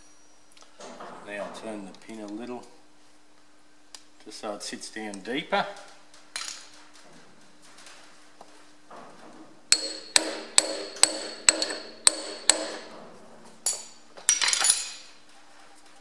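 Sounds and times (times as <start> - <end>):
hammer tapping steel punch: 9.7 - 13.0.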